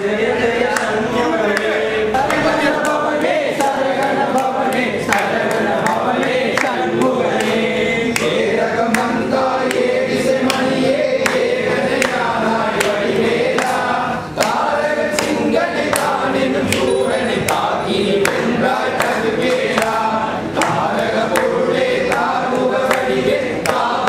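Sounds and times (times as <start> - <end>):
men singing a hymn together: 0.0 - 24.0
sharp percussive strikes: 12.8 - 22.4.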